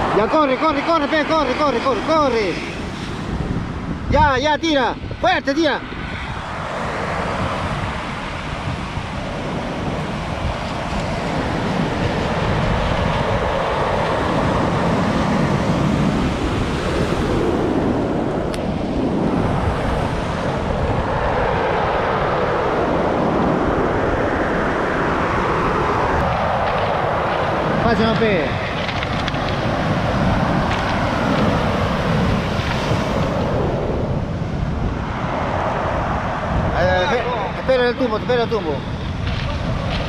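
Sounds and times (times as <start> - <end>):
surf breaking on pebble beach: 26.2 - 34.2.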